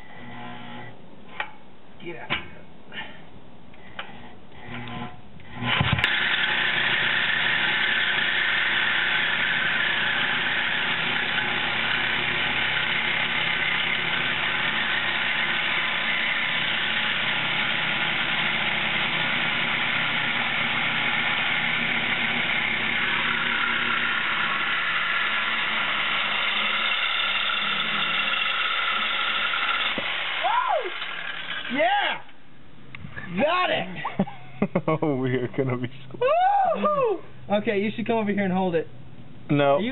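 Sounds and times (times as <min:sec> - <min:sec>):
reciprocating saw cutting metal pipe: 0:04.6 - 0:32.0.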